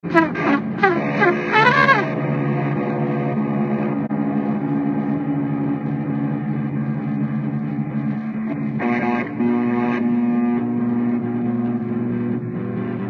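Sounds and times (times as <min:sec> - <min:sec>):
bass: 0:00.0 - 0:13.0
electric guitar chords: 0:00.0 - 0:13.0.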